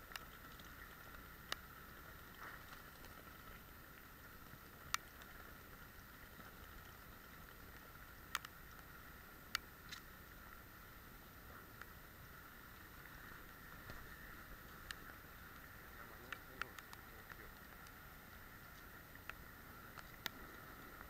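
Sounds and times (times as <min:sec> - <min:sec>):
muffled rain hiss: 0:00.0 - 0:21.0
sharp ticks: 0:07.7 - 0:10.1, 0:14.7 - 0:18.0.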